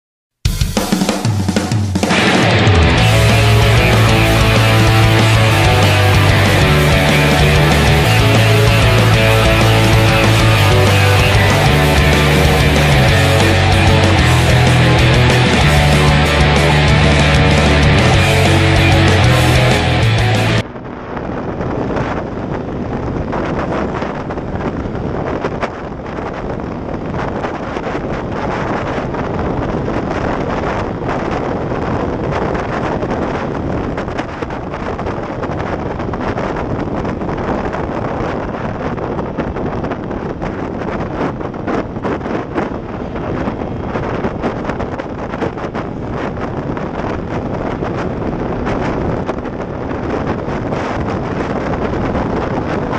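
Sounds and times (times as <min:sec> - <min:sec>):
scooter engine running flat out: 0:02.0 - 0:20.6
wind buffeting microphone: 0:02.1 - 0:52.9.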